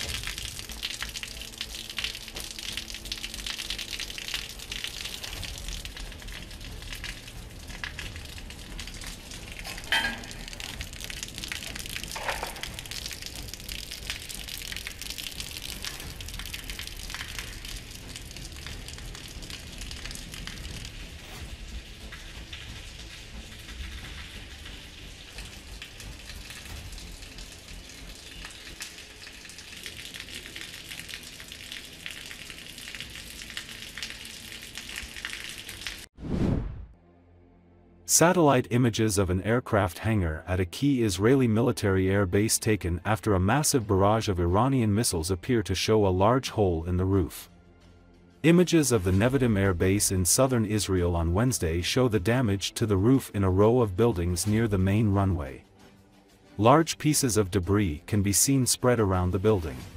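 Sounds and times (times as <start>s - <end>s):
water dripping: 0.0s - 36.1s.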